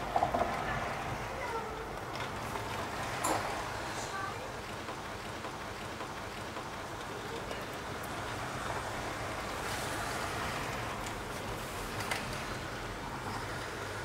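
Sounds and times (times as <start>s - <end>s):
rain hissing: 7.2s - 12.8s.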